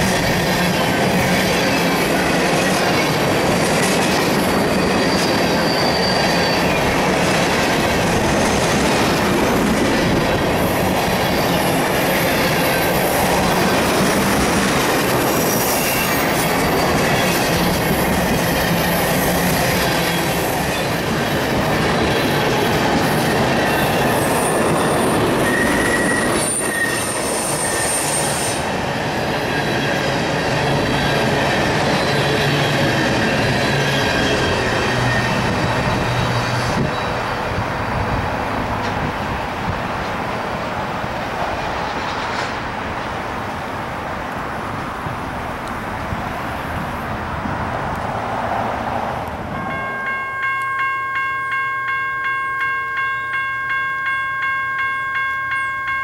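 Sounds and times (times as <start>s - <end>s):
train wheels rumbling on rail: 0.0s - 51.6s
high-pitched wheel squeals: 4.3s - 7.5s, 15.4s - 21.0s, 22.0s - 28.7s.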